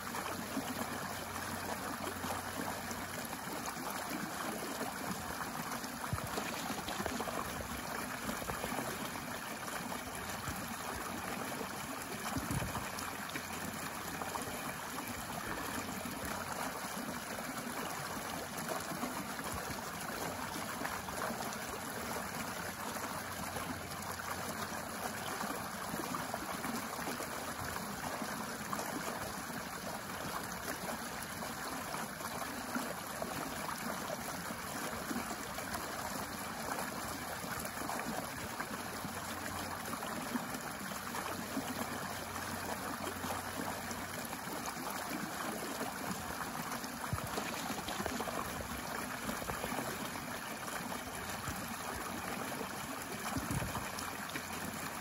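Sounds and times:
stream splashing over stones: 0.0s - 55.0s.

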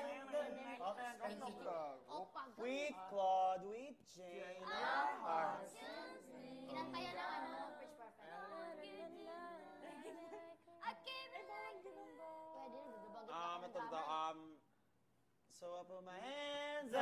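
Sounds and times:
young voices singing together: 4.3s - 14.1s.

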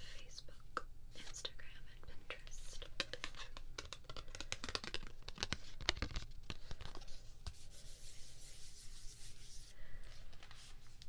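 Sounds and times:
soft rubbing on card: 2.3s - 11.0s.

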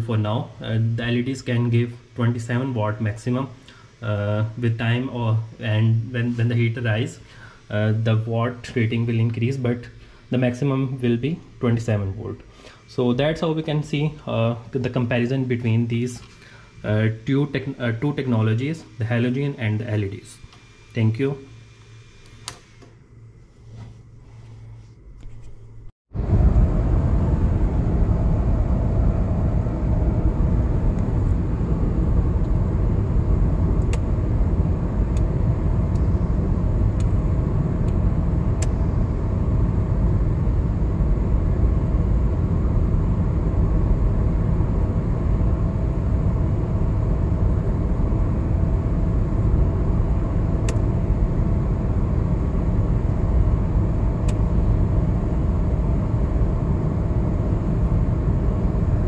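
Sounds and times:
car engine running: 26.1s - 59.0s.

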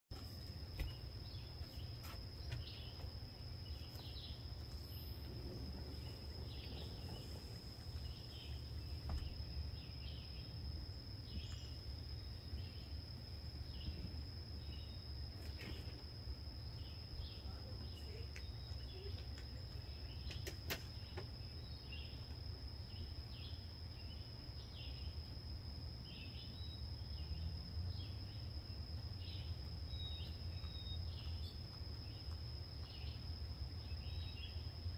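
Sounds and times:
low rumble: 4.4s - 10.5s.

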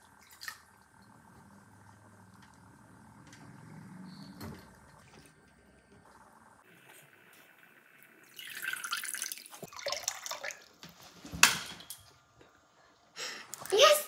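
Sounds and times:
water splashing into a tub: 8.3s - 10.8s.

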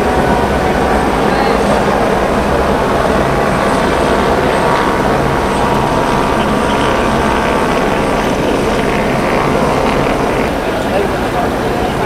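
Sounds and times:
loud engine drone: 0.0s - 12.0s.

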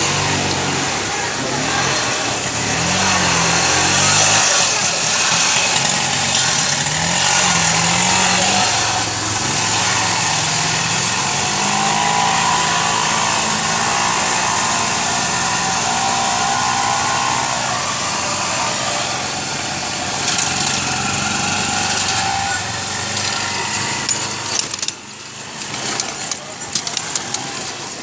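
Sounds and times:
small vehicle engine running: 0.0s - 28.0s
water swishing around wheels: 0.0s - 28.0s.

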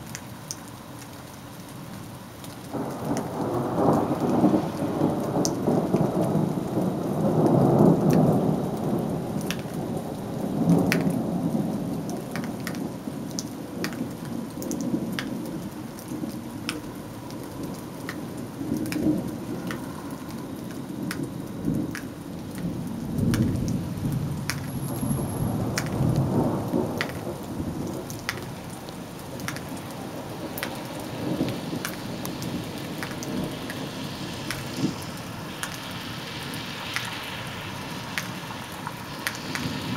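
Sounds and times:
steady rain: 0.0s - 39.9s
thunder rolling: 2.7s - 9.5s, 22.6s - 28.5s.

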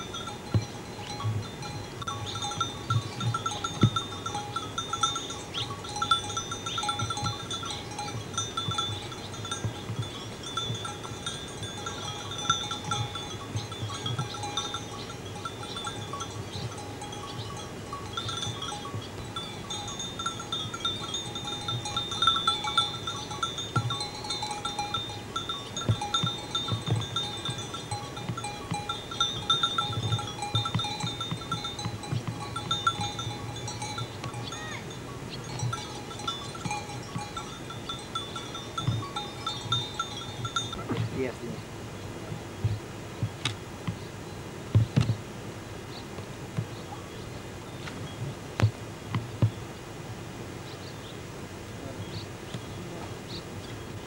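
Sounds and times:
sheep bells tinkling: 0.0s - 41.7s.

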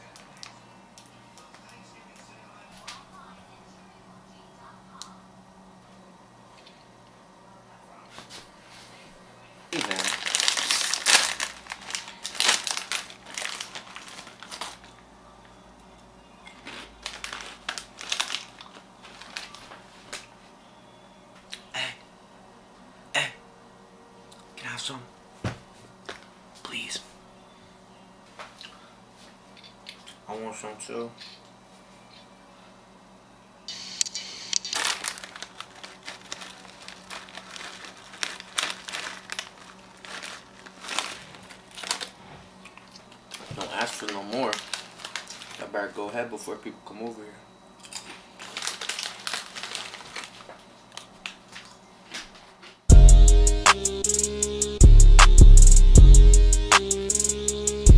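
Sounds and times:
chips crackling as eaten: 9.8s - 15.0s, 16.5s - 20.3s, 33.9s - 45.7s, 47.8s - 51.8s
snack bag crinkling: 9.8s - 15.0s, 16.5s - 20.3s, 33.7s - 45.7s, 47.8s - 51.8s.

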